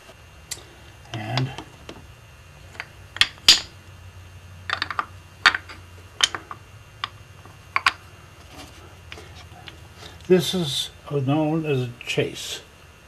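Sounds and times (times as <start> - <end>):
wooden blocks clacking and knocking: 2.7 - 3.7, 4.7 - 8.0.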